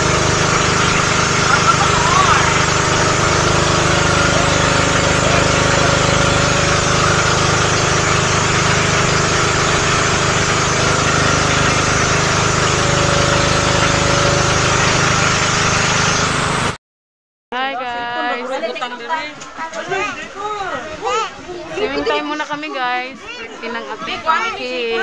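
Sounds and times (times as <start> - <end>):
boat engine running: 0.0 - 16.8.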